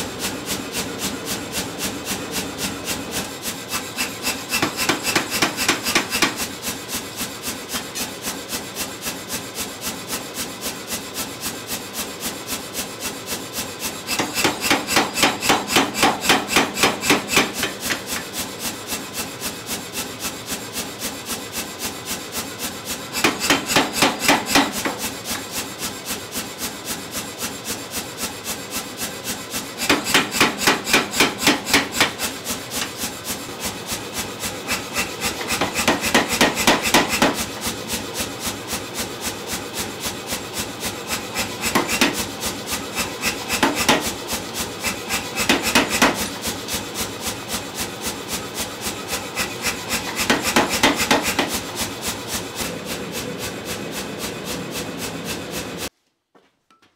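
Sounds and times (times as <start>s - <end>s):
power hammer heavy rapid blows: 14.0s - 18.2s, 23.1s - 25.5s, 29.6s - 37.8s, 40.0s - 55.9s
power hammer lighter knocking: 14.1s - 18.3s, 23.2s - 25.4s, 29.8s - 33.0s, 34.7s - 37.5s, 41.4s - 42.3s, 43.3s - 44.2s, 45.2s - 46.4s, 49.4s - 51.6s.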